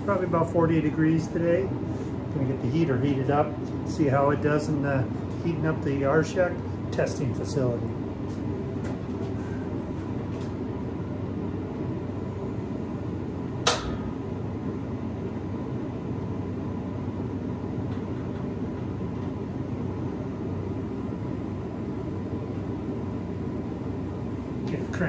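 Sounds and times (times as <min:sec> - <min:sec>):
fan running with low rumble: 0:00.0 - 0:25.0
sharp click: 0:13.6 - 0:14.1.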